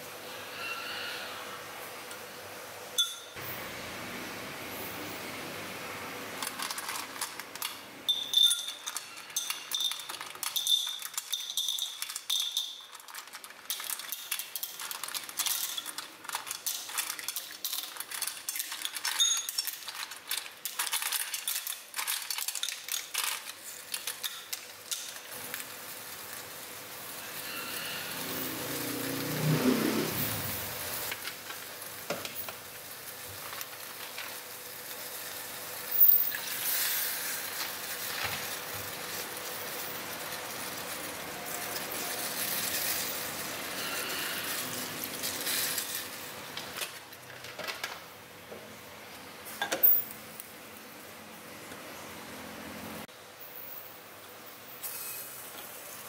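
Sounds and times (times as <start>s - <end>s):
clams clattering in metal bowl: 6.4s - 7.8s, 8.4s - 25.3s
hiss: 27.1s - 30.8s, 36.0s - 37.5s.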